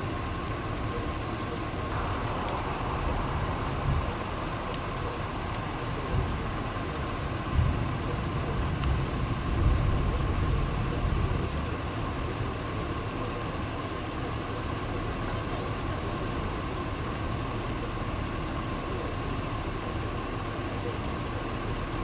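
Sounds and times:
wind buffeting microphone: 0:01.5 - 0:12.6.

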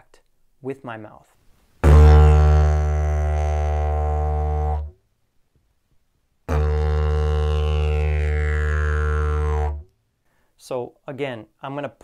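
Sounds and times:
didgeridoo drone: 0:01.8 - 0:04.9, 0:06.5 - 0:09.8.

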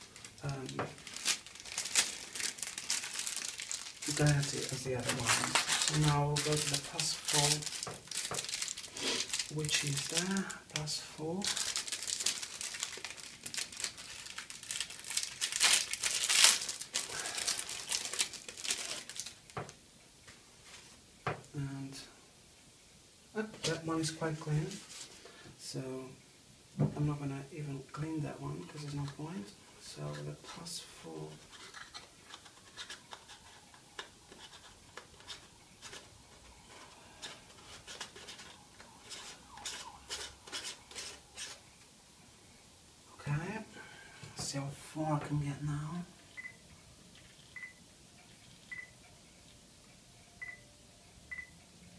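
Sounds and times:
plastic bag crinkling: 0:00.0 - 0:19.7, 0:31.4 - 0:41.7.

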